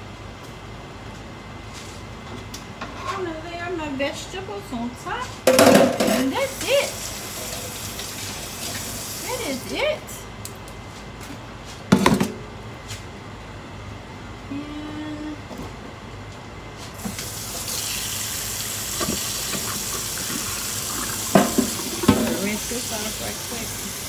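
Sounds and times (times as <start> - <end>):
tap running into metal sink: 19.0 - 22.6.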